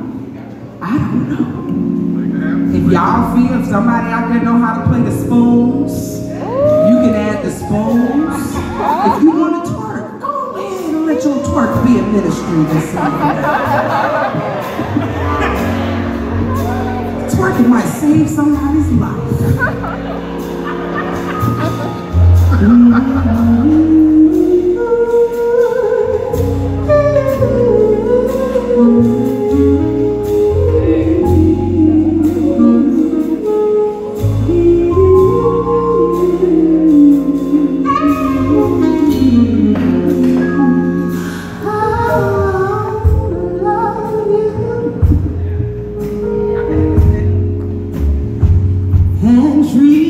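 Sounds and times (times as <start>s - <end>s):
band accompaniment: 0.0s - 50.0s
low bass notes: 0.0s - 50.0s
woman singing: 22.4s - 45.5s, 49.1s - 50.0s.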